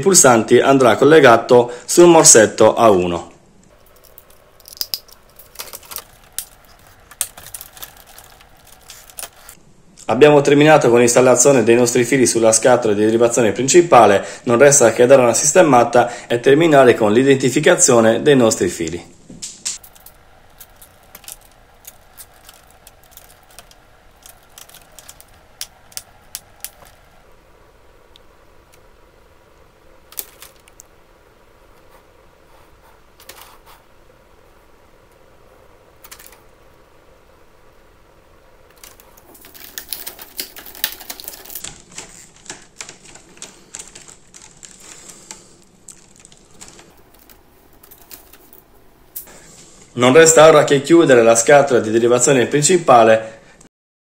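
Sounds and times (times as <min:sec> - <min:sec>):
cable ties clicking tight: 0:19.4 - 0:27.1.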